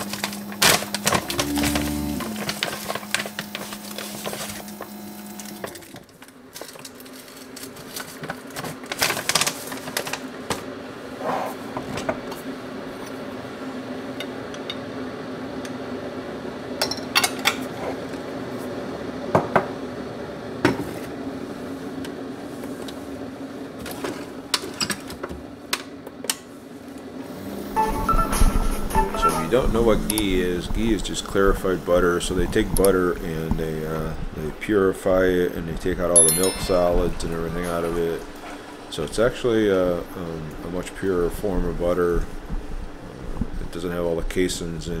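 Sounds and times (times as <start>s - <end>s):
coffee maker humming: 0.0s - 6.2s
spoon and jars clinking: 36.2s - 37.8s.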